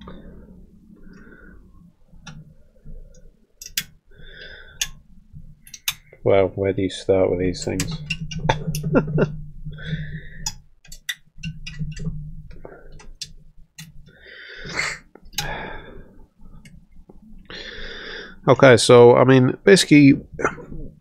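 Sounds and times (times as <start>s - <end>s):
small metal clicks and scrapes: 3.1s - 4.0s, 5.6s - 6.1s, 7.6s - 14.1s
breathy exhale: 4.1s - 5.0s, 9.8s - 10.5s, 14.1s - 16.3s, 17.5s - 18.4s.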